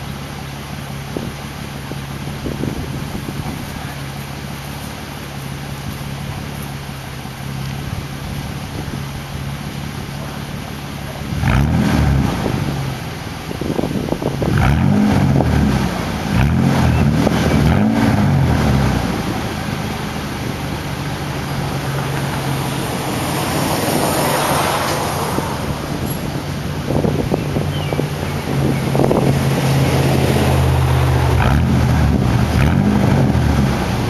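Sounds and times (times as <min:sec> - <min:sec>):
truck engine idling: 0:00.0 - 0:34.0
engine revving: 0:11.1 - 0:13.2, 0:14.4 - 0:20.2, 0:21.2 - 0:34.0.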